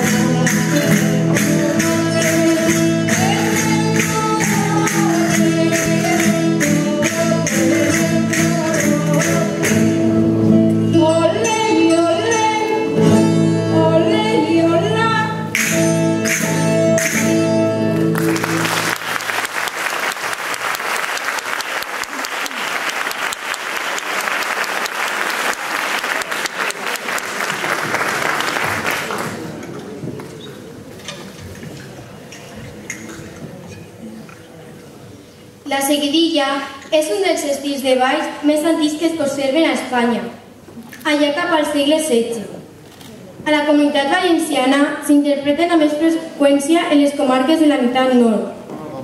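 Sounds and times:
person singing: 0.0 - 15.6
plucked-string band playing: 0.0 - 18.6
sharp percussive strokes: 15.5 - 17.6
audience applause: 18.0 - 30.0.

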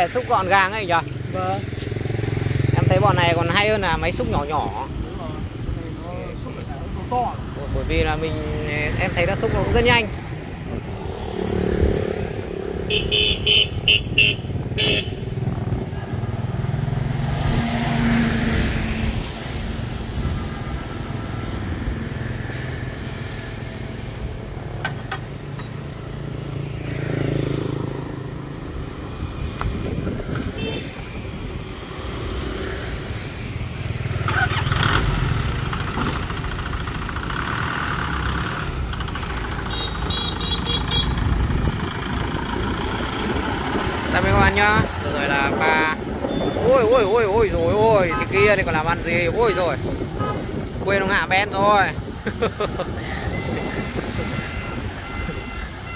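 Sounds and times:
motorbikes passing: 0.0 - 55.9
truck pulling away: 34.2 - 44.3.

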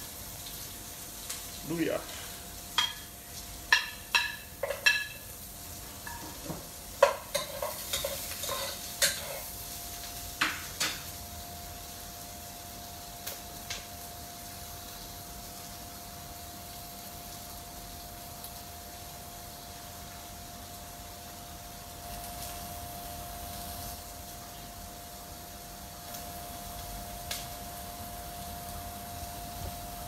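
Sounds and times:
food sizzling in oil: 0.0 - 30.0.

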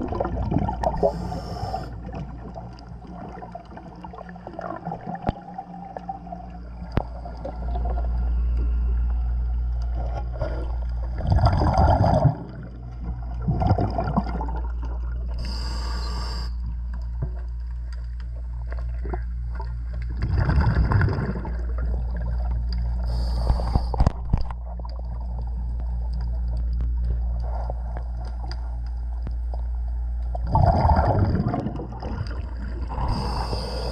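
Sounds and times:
underwater exhaled bubbles gurgling: 0.0 - 17.4, 18.4 - 33.9
steady low hum: 0.0 - 33.9
air hissing: 1.0 - 1.9, 15.4 - 16.6, 23.1 - 24.0, 33.1 - 33.9.

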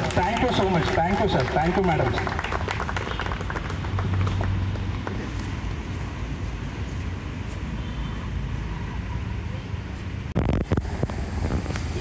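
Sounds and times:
hands clapping: 0.0 - 5.5.

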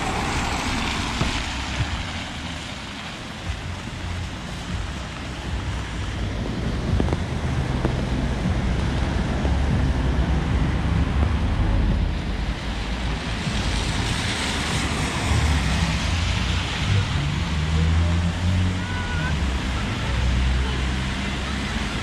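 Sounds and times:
low rumble: 0.0 - 17.5
steady rain: 0.0 - 22.0.

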